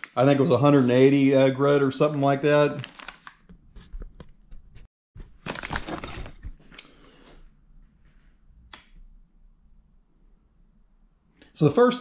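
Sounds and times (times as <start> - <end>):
plastic bag rustling: 2.8 - 3.4, 5.2 - 6.7.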